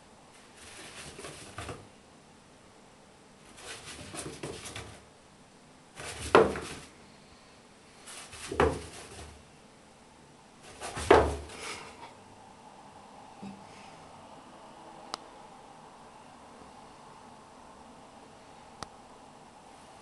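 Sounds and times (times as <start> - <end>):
chinchilla rustling in dust: 0.4 - 1.8, 3.4 - 5.0, 6.0 - 7.0, 8.0 - 9.4.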